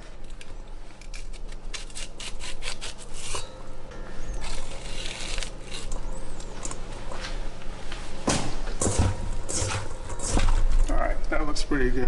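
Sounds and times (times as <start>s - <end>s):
knife scraping corn kernels: 1.0s - 3.5s, 4.4s - 6.0s.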